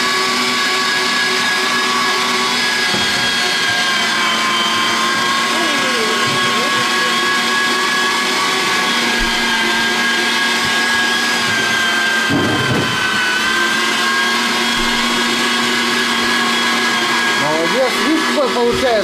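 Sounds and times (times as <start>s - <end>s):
electric meat grinder whining: 0.0s - 19.0s.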